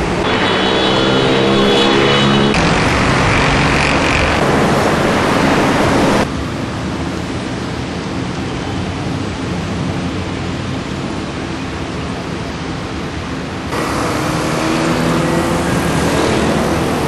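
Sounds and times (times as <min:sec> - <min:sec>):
steady engine tones: 0:00.0 - 0:06.6, 0:13.7 - 0:17.0
city road traffic roar: 0:00.0 - 0:17.0.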